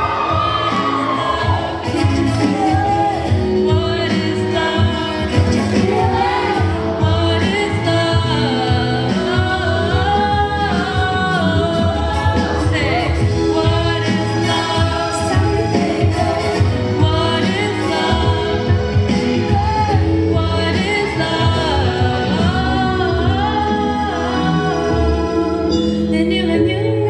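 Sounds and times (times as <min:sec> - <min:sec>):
musical accompaniment: 0:00.0 - 0:27.0
woman singing into microphone: 0:00.0 - 0:27.0.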